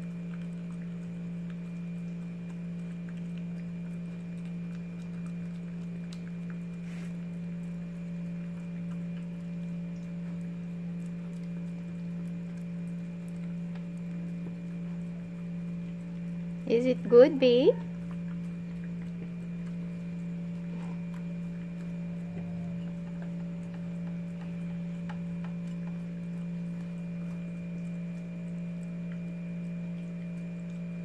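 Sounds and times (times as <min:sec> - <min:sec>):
dog licking and chewing: 0:00.0 - 0:31.0
low electrical hum: 0:00.0 - 0:31.0.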